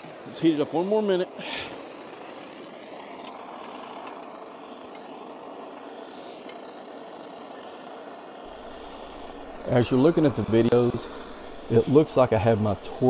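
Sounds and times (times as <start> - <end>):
propane torch hissing: 0.0 - 13.0.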